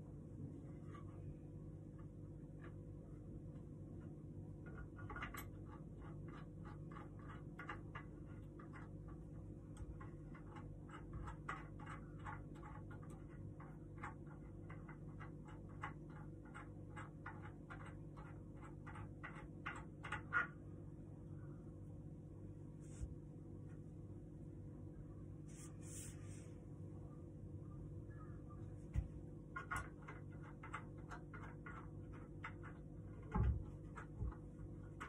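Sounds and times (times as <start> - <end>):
low steady hum: 0.0 - 35.0.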